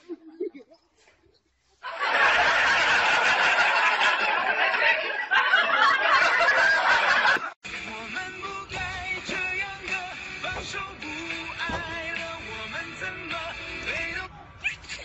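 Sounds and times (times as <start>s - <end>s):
people laughing: 1.8s - 7.6s.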